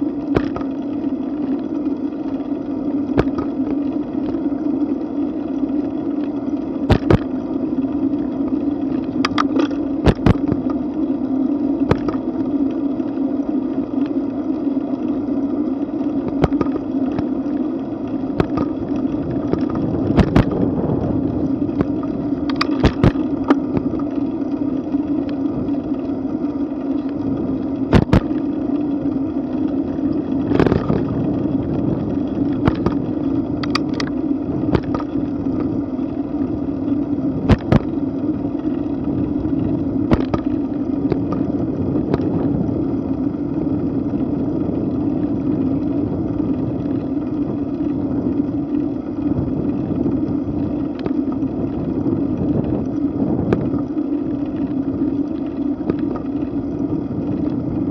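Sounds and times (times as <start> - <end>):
bicycle tyre and wind rumble: 0.0 - 57.9.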